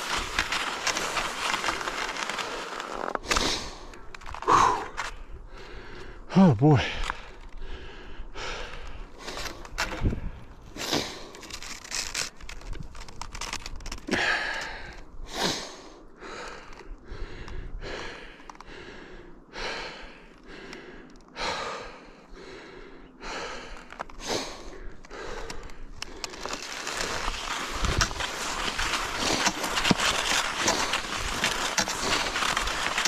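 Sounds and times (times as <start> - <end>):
person breathing hard: 0.1 - 11.4, 14.1 - 33.0
skis hissing on snow track: 26.6 - 33.0.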